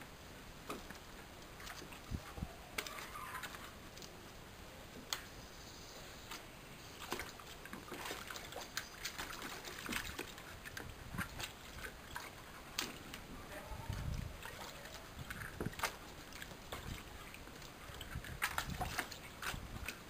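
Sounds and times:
dog splashing in water: 0:07.0 - 0:10.7.

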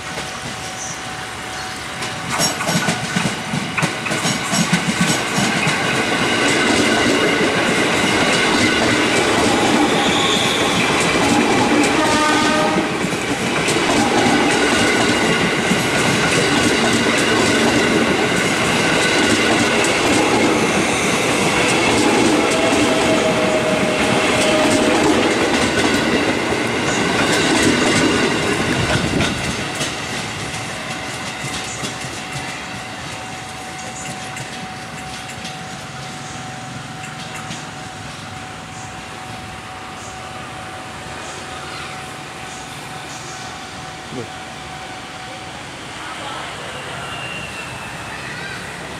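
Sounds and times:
train wheels clattering over rails: 0:01.9 - 0:38.9.

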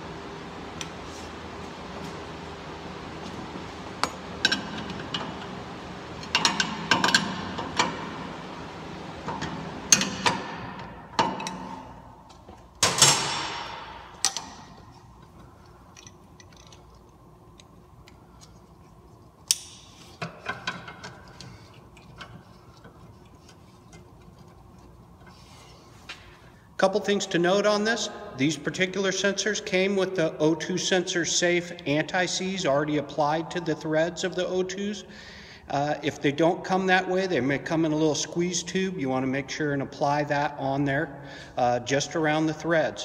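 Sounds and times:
loud metallic clank: 0:12.8 - 0:14.7.

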